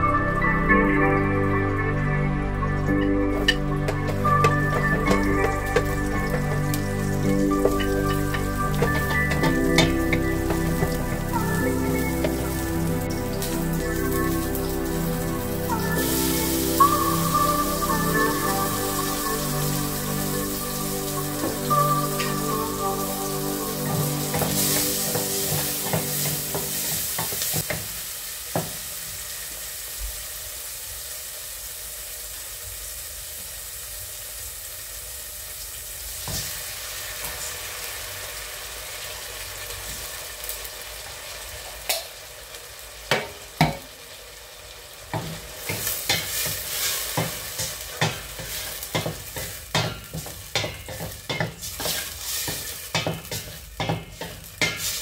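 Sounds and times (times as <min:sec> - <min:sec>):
food sizzling in a pot: 0:03.0 - 0:55.0
wooden spoon knocking pot: 0:03.4 - 0:06.8, 0:48.0 - 0:52.0.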